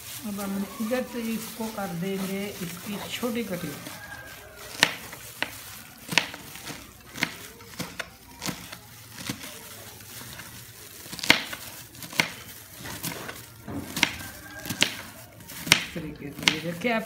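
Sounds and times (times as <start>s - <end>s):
knife chopping on cutting board: 13.0s - 15.0s.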